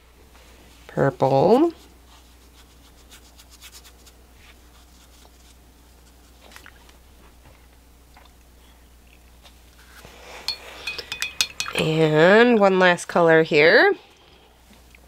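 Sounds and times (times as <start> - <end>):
brush scratching on paper: 2.0 - 6.2
low hum: 6.6 - 15.0.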